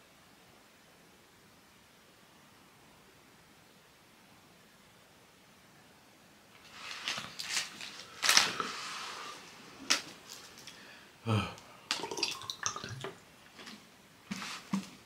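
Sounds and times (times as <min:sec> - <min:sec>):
plastic bottle crinkling: 0:06.9 - 0:08.8.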